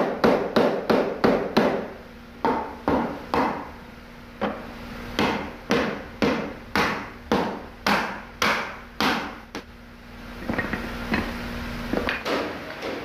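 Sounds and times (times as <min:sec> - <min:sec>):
wooden mallet striking wood: 0:02.5 - 0:03.7, 0:05.2 - 0:09.4.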